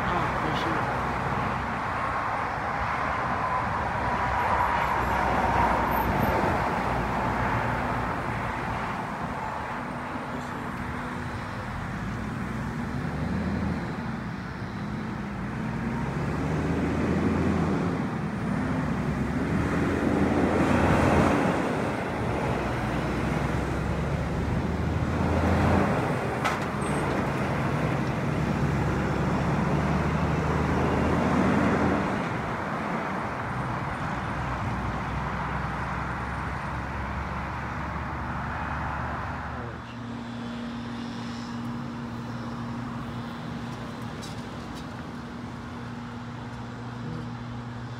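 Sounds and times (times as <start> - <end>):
road traffic: 0.0 - 47.9
truck engine accelerating: 10.6 - 32.6.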